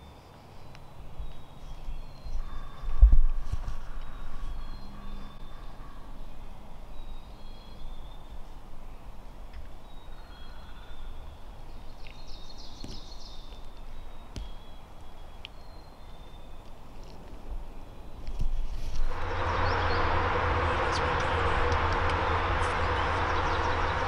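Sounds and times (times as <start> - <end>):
bird chirps: 0.0 - 3.2, 3.9 - 8.5, 9.8 - 16.7
low rumble: 19.0 - 24.0.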